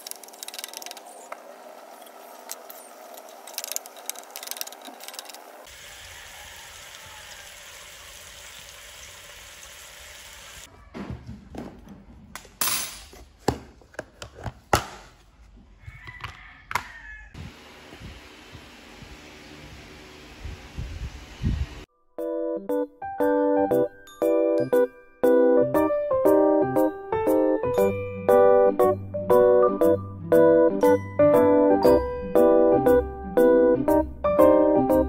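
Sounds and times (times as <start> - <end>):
meat sizzling in oil: 5.7 - 10.6.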